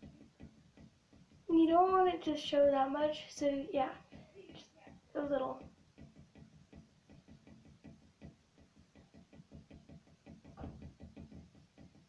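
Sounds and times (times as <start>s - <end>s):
handling taps and rustles: 0.0s - 1.5s.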